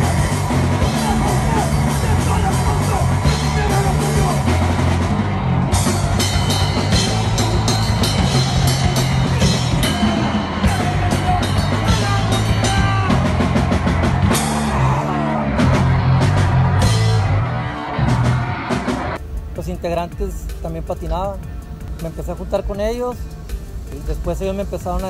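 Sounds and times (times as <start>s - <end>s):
punk band playing live: 0.0s - 19.4s.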